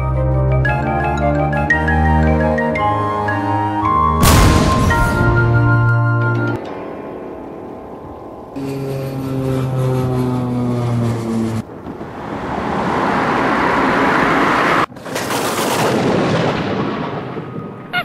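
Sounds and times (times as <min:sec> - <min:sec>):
engine drone: 0:06.6 - 0:14.9
jet aircraft roar: 0:06.7 - 0:14.9.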